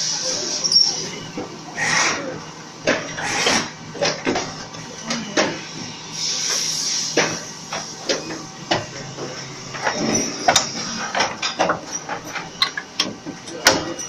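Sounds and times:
compressed air hiss: 0:06.2 - 0:07.5.

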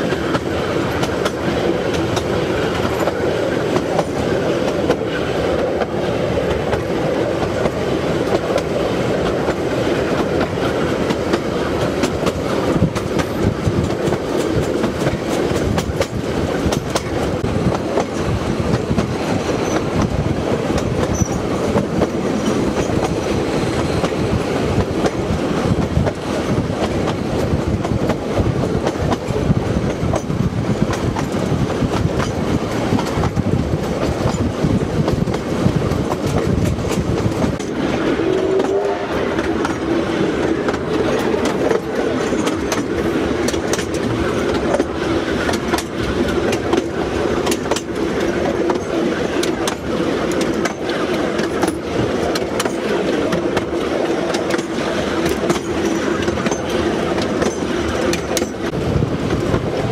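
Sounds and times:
wheels clicking over rail joints: 0:00.0 - 0:37.8, 0:39.4 - 0:59.9
train rumble: 0:00.0 - 0:59.9.

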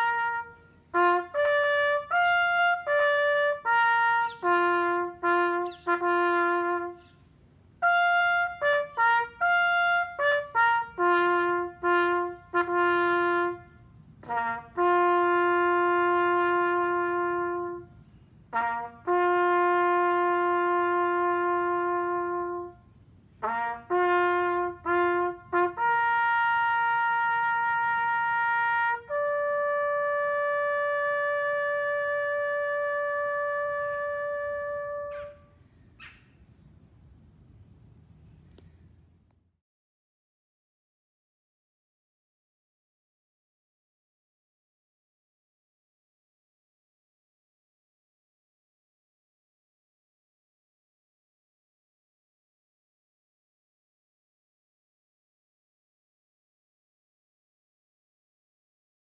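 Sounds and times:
solo trumpet bugle call: 0:00.0 - 0:36.4.

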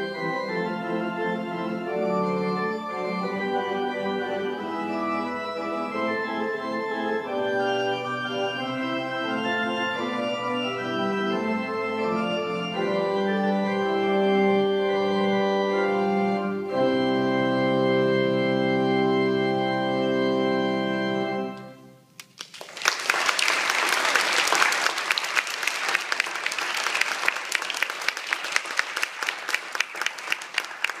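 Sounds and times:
pipe organ chord: 0:00.0 - 0:22.0
audience applause: 0:22.2 - 0:31.0.

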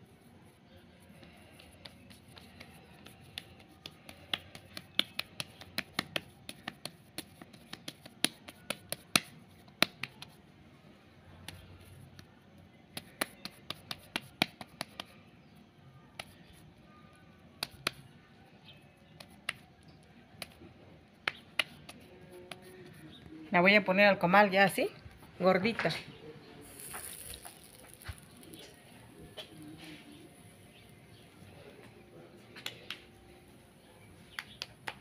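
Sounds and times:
hands slapping dough: 0:01.2 - 0:10.4, 0:12.9 - 0:15.5, 0:17.5 - 0:23.1, 0:32.5 - 0:33.2, 0:34.3 - 0:35.0.

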